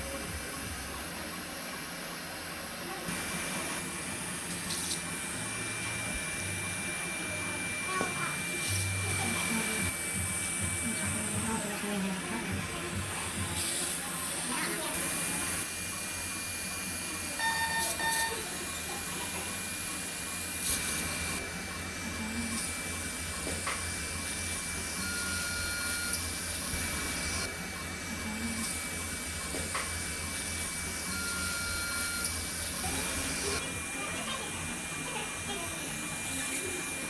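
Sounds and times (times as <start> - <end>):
long beep tones: 17.4 - 18.4
short electronic beeps: 17.4 - 18.4.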